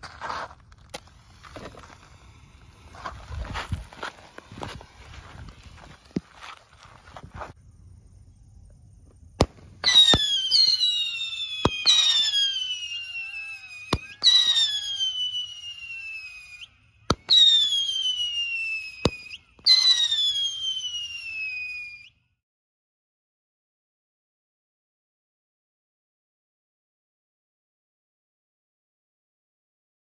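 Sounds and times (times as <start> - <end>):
fireworks cracks: 0.0 - 7.6, 9.4 - 21.6
fireworks whistling: 0.0 - 7.6, 9.1 - 22.2.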